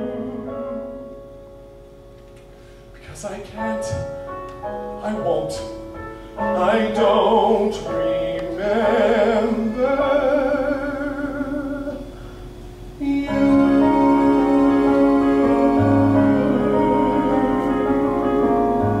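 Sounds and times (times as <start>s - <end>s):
man singing with vibrato: 0.0s - 1.2s, 3.2s - 4.2s, 5.0s - 5.8s, 6.4s - 12.2s, 13.0s - 19.0s
keyboard chords: 0.0s - 19.0s.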